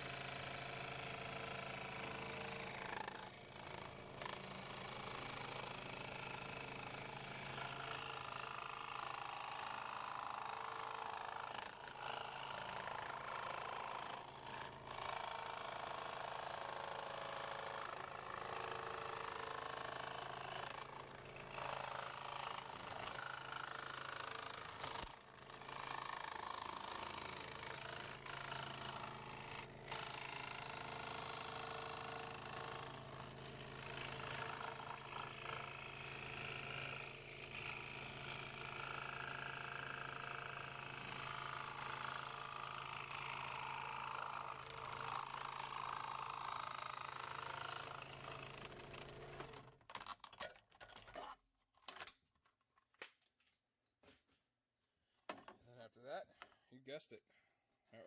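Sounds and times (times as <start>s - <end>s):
scroll saw cutting plastic: 19.1s - 37.8s, 39.9s - 52.2s.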